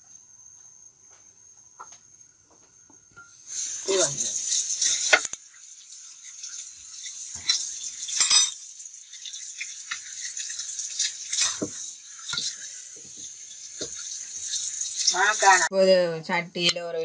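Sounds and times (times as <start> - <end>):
steady high hiss: 3.2 - 15.7.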